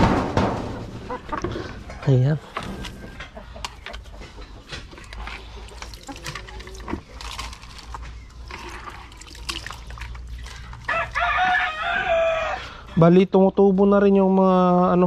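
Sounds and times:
hens pecking taps: 0:01.1 - 0:07.2.

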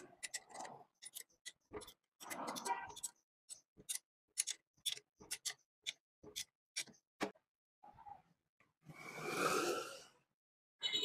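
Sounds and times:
wrench clicking on metal nuts: 0:00.0 - 0:06.9.

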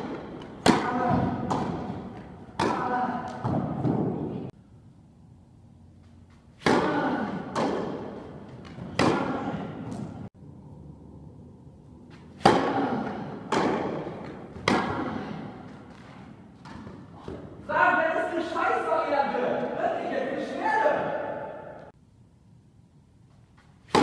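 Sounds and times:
tennis ball hits echoing: 0:00.0 - 0:04.3, 0:06.6 - 0:10.2, 0:12.1 - 0:17.5.

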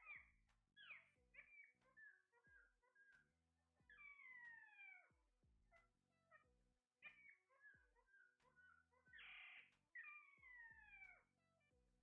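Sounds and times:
parakeets calling: 0:00.0 - 0:03.2, 0:07.0 - 0:11.3
parakeet squawk: 0:00.0 - 0:03.3, 0:03.9 - 0:05.1, 0:07.0 - 0:11.6.

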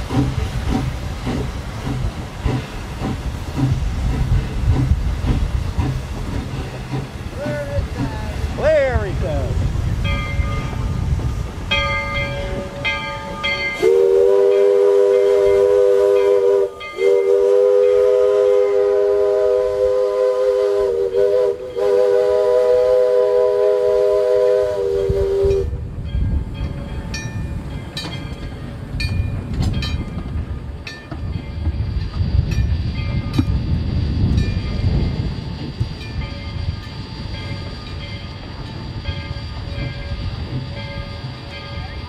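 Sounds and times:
train rumbling along rails: 0:00.0 - 0:42.0
locomotive bell ringing: 0:10.0 - 0:11.0, 0:11.6 - 0:18.0, 0:25.5 - 0:33.7, 0:34.3 - 0:42.0
steam locomotive chime whistle: 0:11.7 - 0:29.2, 0:34.3 - 0:42.0.

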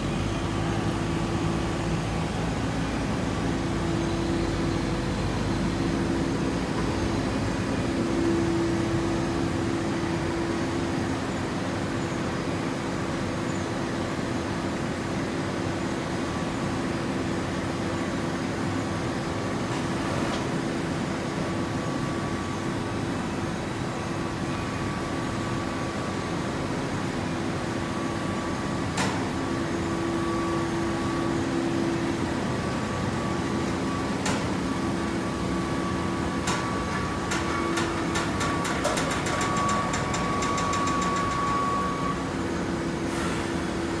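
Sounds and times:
baler machine hum: 0:20.6 - 0:44.0.

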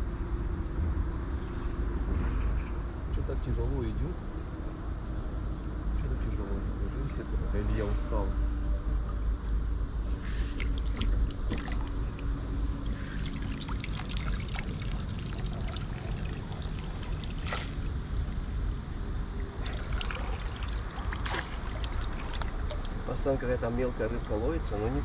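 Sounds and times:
steady low rumble: 0:00.0 - 0:25.0
water pouring off a net: 0:10.1 - 0:12.0, 0:12.8 - 0:18.3, 0:19.4 - 0:23.0
small splashes and drips: 0:10.1 - 0:18.4, 0:19.3 - 0:23.1.

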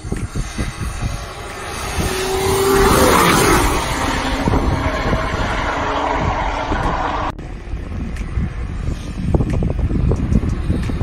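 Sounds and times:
wind buffeting microphone: 0:00.0 - 0:11.0
race car engine passing: 0:00.2 - 0:07.7.

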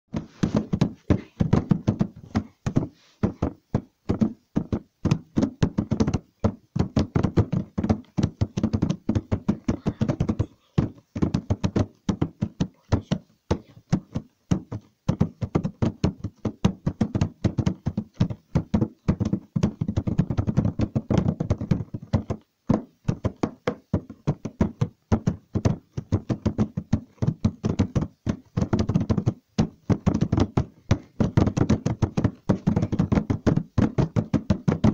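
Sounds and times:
irregular knocking and tapping: 0:00.1 - 0:34.9.

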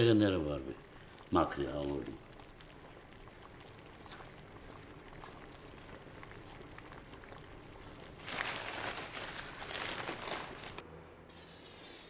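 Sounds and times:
paper bag rustling: 0:08.2 - 0:10.8.

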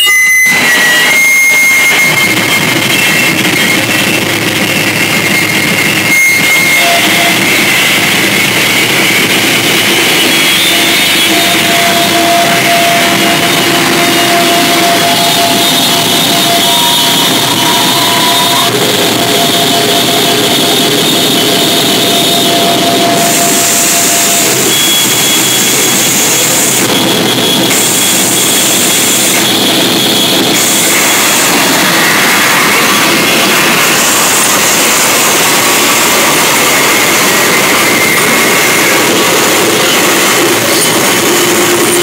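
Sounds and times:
band playing distorted noise: 0:00.0 - 0:42.0.

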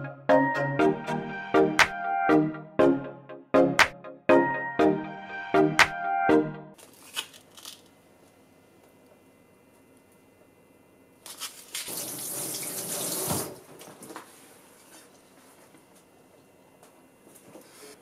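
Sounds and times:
tap water running: 0:11.8 - 0:13.7.

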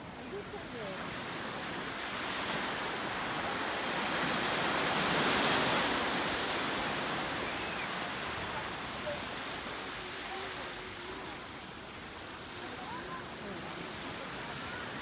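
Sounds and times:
ocean wave breaking: 0:00.0 - 0:15.0.

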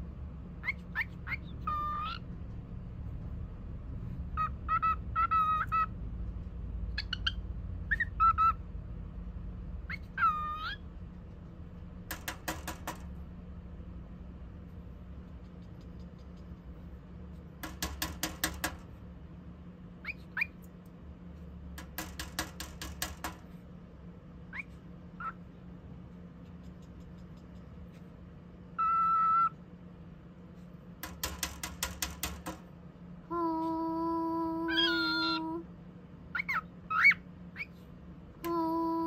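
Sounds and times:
bird fast clicking: 0:12.1 - 0:13.1, 0:17.6 - 0:18.8, 0:21.8 - 0:23.4, 0:31.0 - 0:32.6.

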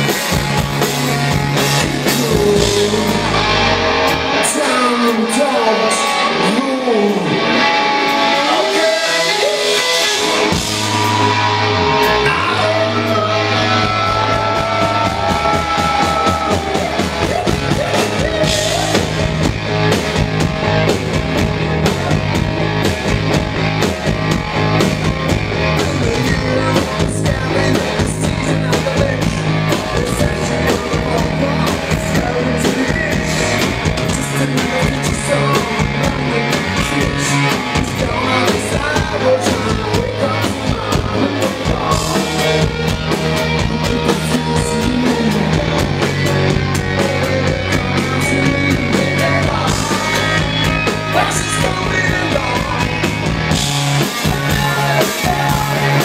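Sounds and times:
drums driving beat: 0:00.0 - 0:05.1, 0:07.7 - 0:56.0
bass guitar: 0:00.0 - 0:56.0
electric guitar: 0:00.0 - 0:56.0.

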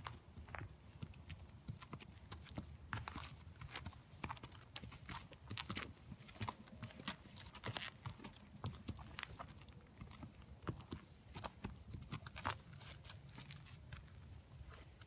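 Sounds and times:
horse hooves on grass and gravel: 0:00.0 - 0:15.0.

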